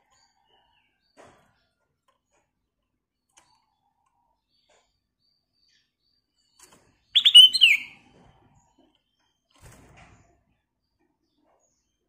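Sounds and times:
bird song: 3.1s - 8.0s, 10.5s - 12.0s.

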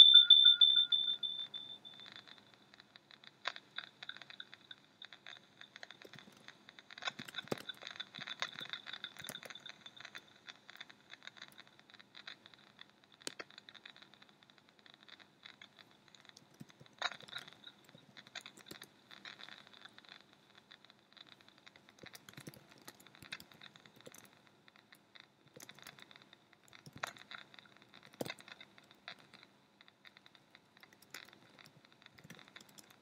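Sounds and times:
sharp clicks: 3.2s - 11.6s, 21.2s - 24.4s, 25.2s - 33.0s.

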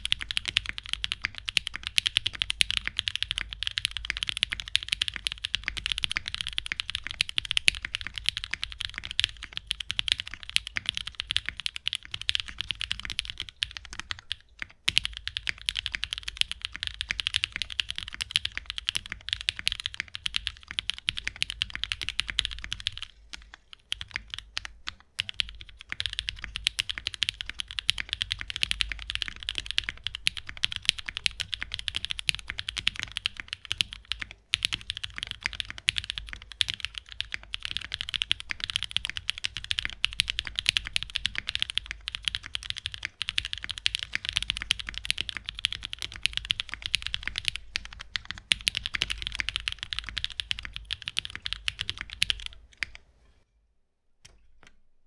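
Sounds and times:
fast typing on mechanical keyboard: 0.0s - 53.0s.

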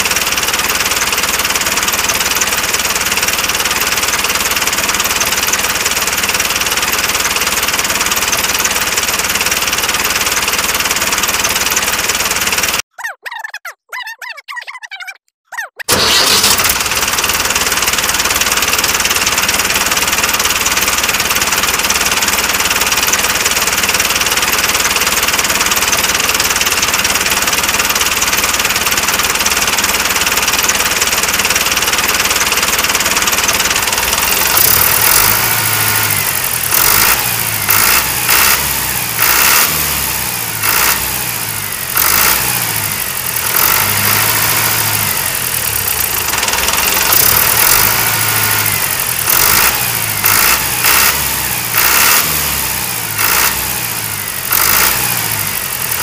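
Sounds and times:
engine-like running noise: 15.9s - 56.0s.

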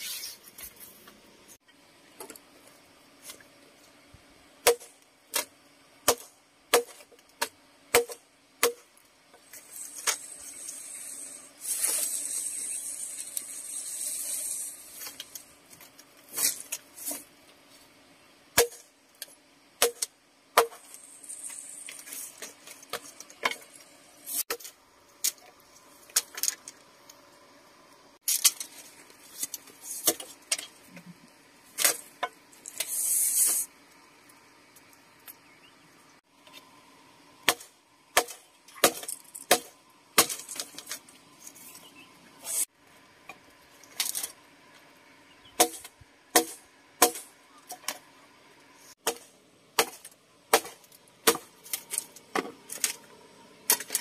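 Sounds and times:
high rustling hiss: 9.4s - 18.1s, 20.8s - 35.3s, 38.9s - 42.8s.

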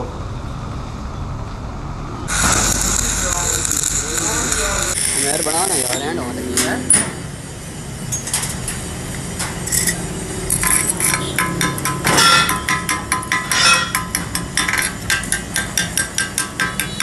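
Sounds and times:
chipping hammer striking metal: 9.7s - 17.0s.

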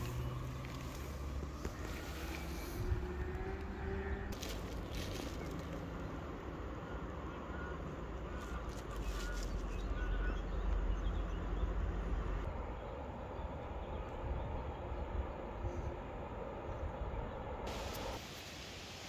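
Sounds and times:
bird chirps: 6.9s - 11.8s.

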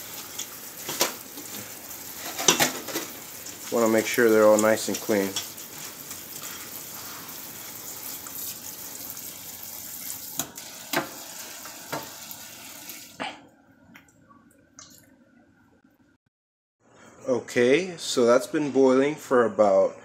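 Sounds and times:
tap water running into colander: 0.0s - 13.2s.

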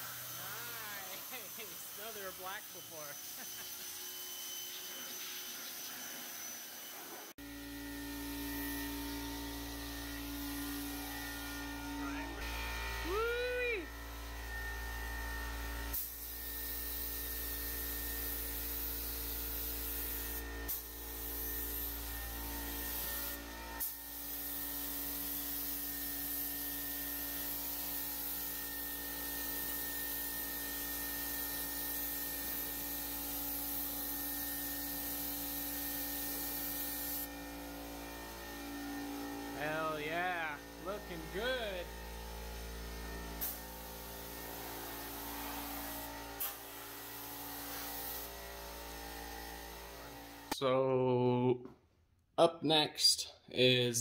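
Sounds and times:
spray gun hissing: 18.3s - 22.1s, 31.6s - 37.3s, 43.4s - 48.4s.

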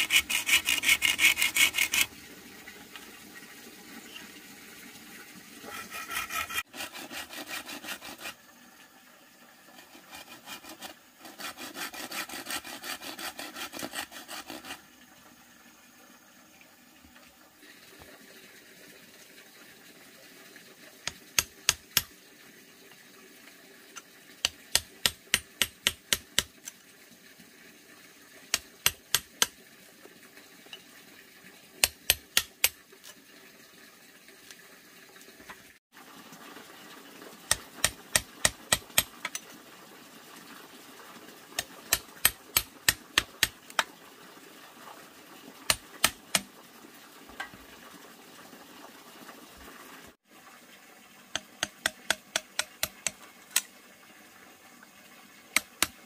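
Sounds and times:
hammer tapping machete blade: 51.4s - 53.6s.

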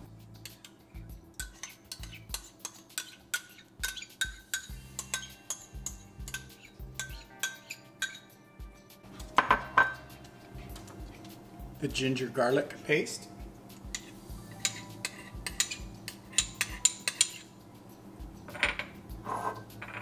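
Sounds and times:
metal spoon clinking on ceramic bowls: 0.4s - 8.4s, 9.4s - 10.1s, 13.9s - 17.6s.

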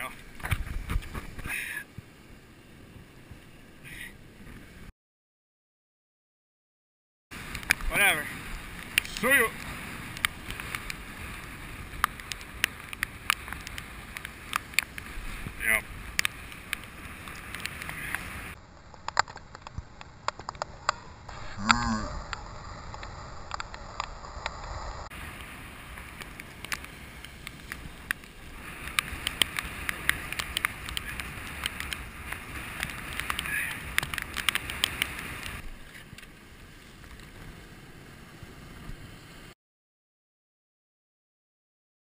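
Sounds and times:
wind buffeting microphone: 0.2s - 2.1s, 25.0s - 37.6s
surf washing against rocks: 7.4s - 18.6s, 25.1s - 36.0s.

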